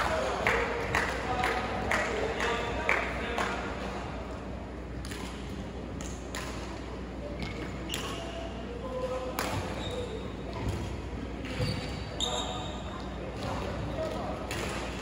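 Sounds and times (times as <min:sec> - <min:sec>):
faint voices in a hall: 0:00.0 - 0:15.0
shoes squeaking on wooden court: 0:09.6 - 0:13.1.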